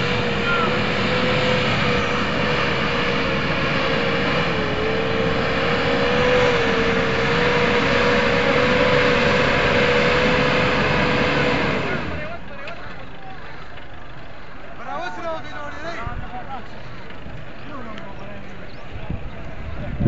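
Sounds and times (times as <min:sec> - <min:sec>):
loud rushing noise: 0:00.0 - 0:12.4
motor running with whine: 0:00.0 - 0:12.4.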